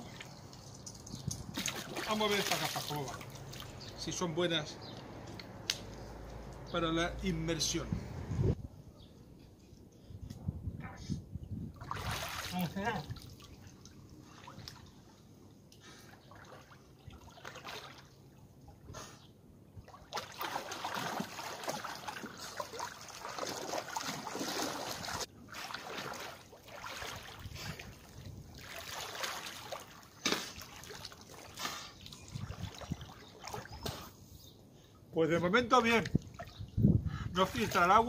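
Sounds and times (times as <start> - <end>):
pool water splashing: 0.0 - 4.0, 11.8 - 18.8, 19.9 - 34.2.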